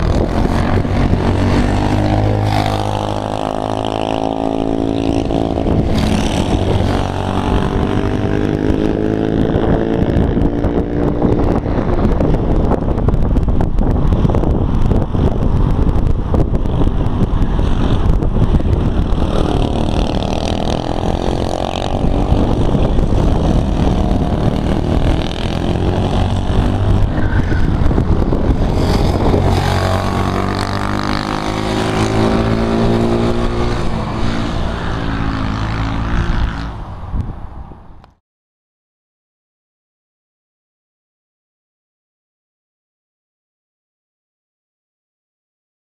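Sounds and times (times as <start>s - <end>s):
wind buffeting microphone: 0.0s - 38.1s
kart engine running hard: 15.5s - 36.6s.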